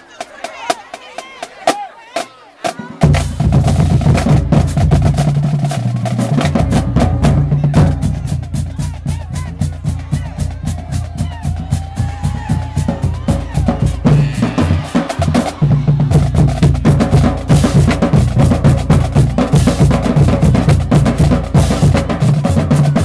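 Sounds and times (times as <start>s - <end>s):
bass drums: 3.0s - 23.0s
snare drum strokes: 13.3s - 18.6s.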